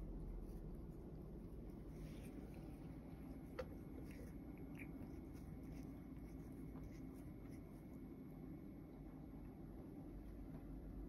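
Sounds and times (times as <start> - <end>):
steady low hum: 0.0 - 11.0
cat licking its paw: 0.4 - 8.3.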